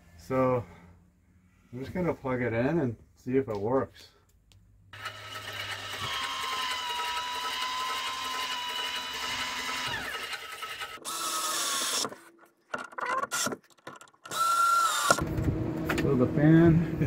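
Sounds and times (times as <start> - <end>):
fan motor whining: 5.0 - 12.0
electric screwdriver running: 5.0 - 12.2, 14.3 - 15.2.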